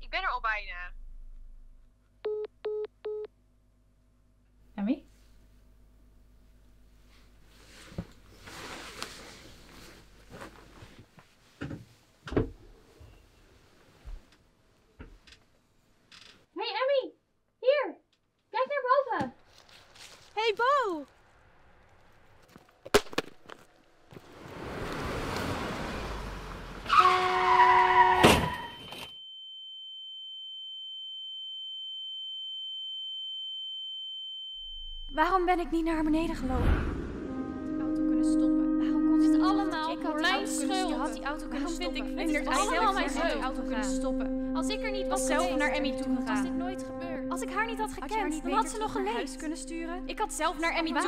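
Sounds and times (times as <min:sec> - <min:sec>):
rustle: 0:07.0 - 0:11.4, 0:19.4 - 0:26.9
car tyres screeching: 0:21.1 - 0:28.8
high-pitched sine tone: 0:28.7 - 0:35.8, 0:37.3 - 0:50.8
loud crash: 0:36.2 - 0:37.8.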